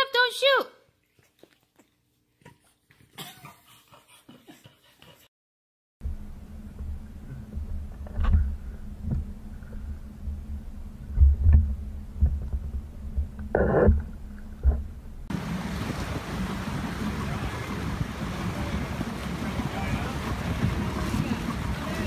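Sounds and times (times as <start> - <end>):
churning wake water: 6.1 - 22.0
motorboat: 6.1 - 22.0
wind rumble on microphone: 6.1 - 22.0.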